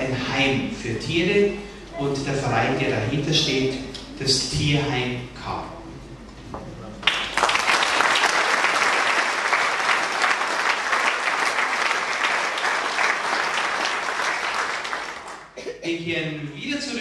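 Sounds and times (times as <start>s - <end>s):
audience applauding: 7.0s - 15.6s.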